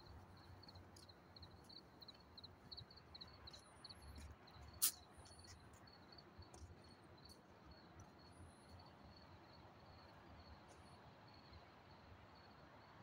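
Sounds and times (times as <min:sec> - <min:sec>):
cricket chirping: 0:00.0 - 0:13.0.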